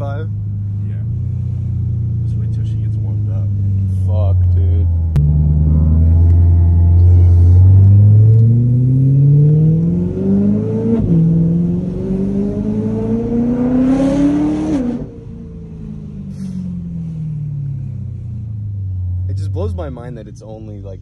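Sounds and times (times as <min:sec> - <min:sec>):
engine exhaust revving from inside: 0:00.0 - 0:19.9.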